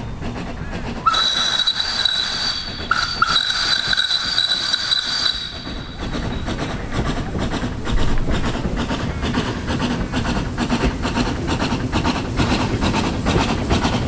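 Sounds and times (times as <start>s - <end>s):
steam engine working: 0.0s - 14.0s
steam whistle blast: 1.1s - 5.9s.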